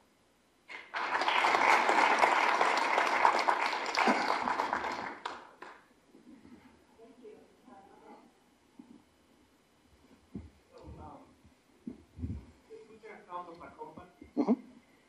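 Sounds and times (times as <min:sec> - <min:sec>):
audience applauding: 0:00.7 - 0:05.9.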